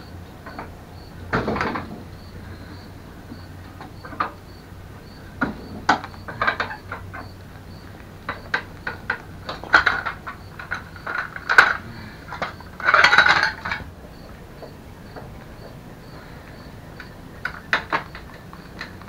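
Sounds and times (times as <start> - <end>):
metal tools clinking on frame: 8.3 - 13.9.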